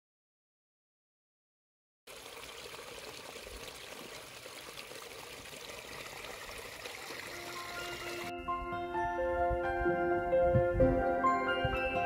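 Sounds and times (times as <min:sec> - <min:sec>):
brook trickling over stones: 0:02.1 - 0:08.3.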